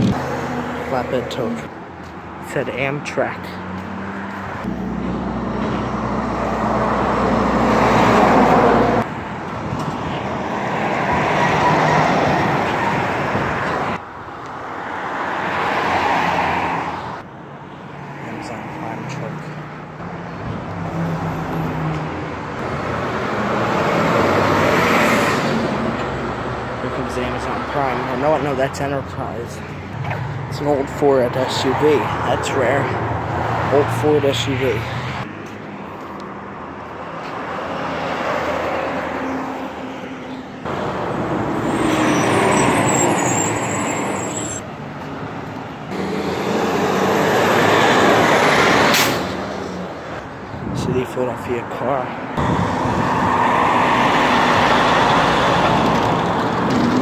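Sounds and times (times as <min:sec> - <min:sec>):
street traffic: 0:00.0 - 0:57.0
trucks driving past: 0:00.0 - 0:57.0
garbage truck diesel engine: 0:45.9 - 0:50.0.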